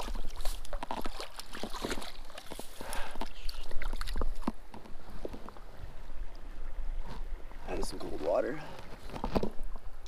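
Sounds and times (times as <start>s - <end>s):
water splashing: 0.0s - 5.3s.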